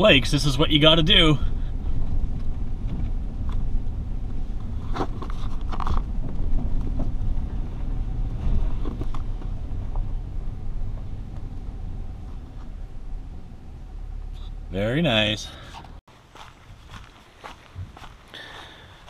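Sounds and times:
vehicle driving on dirt track: 0.0 - 16.0
knocks and rattles: 1.9 - 12.8.

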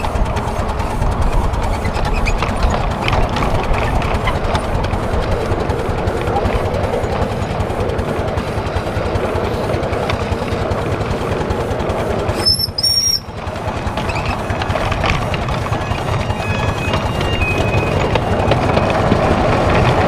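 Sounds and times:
wheels rumbling on rail: 0.0 - 20.0
high-pitched whistle toots: 12.4 - 13.3.

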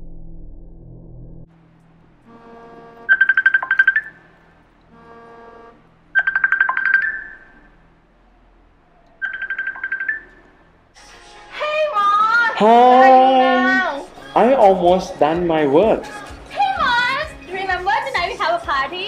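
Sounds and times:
phone ringtone chiming: 3.1 - 4.2, 6.2 - 7.6, 9.2 - 10.5.

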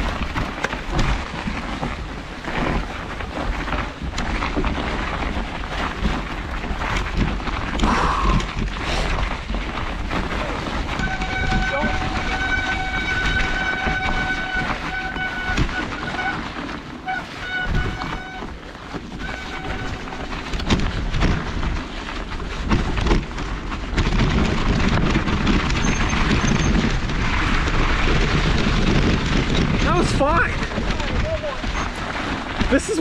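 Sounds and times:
tyre and wind rushing: 0.0 - 33.0
bicycle brakes squealing: 10.3 - 18.6, 19.2 - 20.4, 25.6 - 26.9, 29.9 - 33.0.

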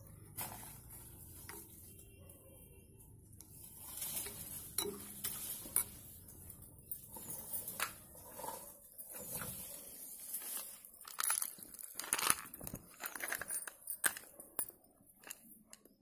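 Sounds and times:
spoon scraping and sloshing slurry: 3.8 - 11.4
spoon clinking on glass: 4.7 - 6.1.

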